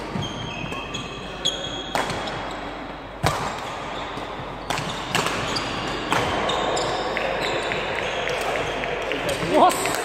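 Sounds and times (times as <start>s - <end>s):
shoes squeaking on wooden floor: 0.0s - 1.9s
rackets striking shuttlecock: 1.8s - 2.5s, 3.2s - 10.0s.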